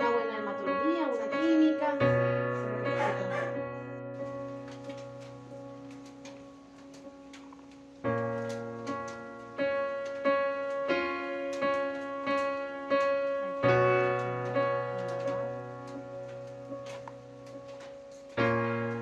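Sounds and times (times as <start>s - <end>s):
piano chords: 0.0s - 19.0s.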